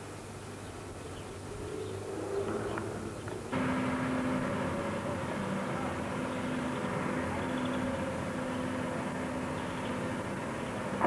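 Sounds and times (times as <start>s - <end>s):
excavator diesel engine running: 2.4s - 11.0s.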